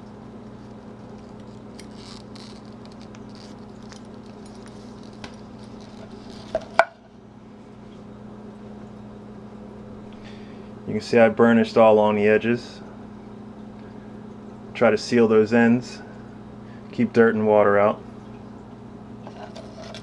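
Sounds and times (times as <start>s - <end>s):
leather belt rustling and scraping: 0.5s - 6.8s.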